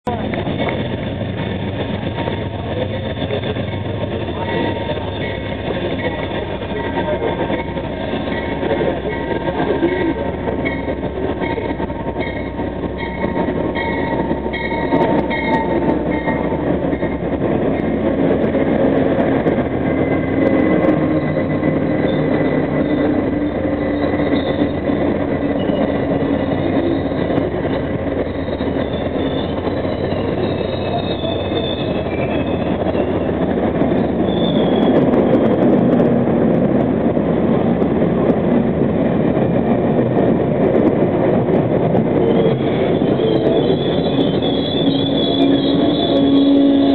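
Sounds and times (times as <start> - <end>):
diesel locomotives passing: 0.0 - 46.9
train cars rolling on rails: 0.0 - 46.9
high wheel squeal: 20.4 - 35.2, 42.2 - 46.9.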